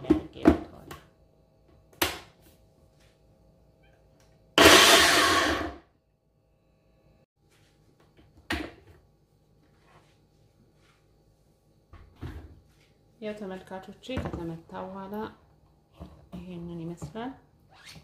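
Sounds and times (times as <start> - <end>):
blender running: 4.6 - 5.8.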